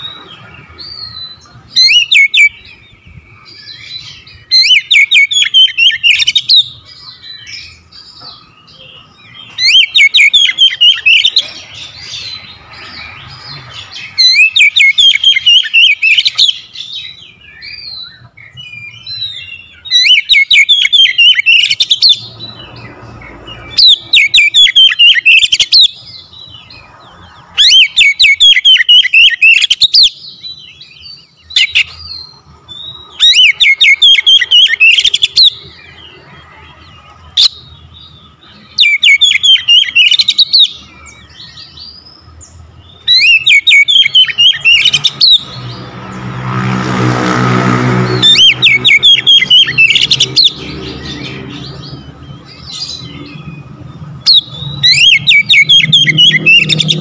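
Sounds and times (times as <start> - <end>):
bird twittering: 0.0 - 46.2, 48.0 - 57.0
bird singing trilling phrases: 0.0 - 57.0.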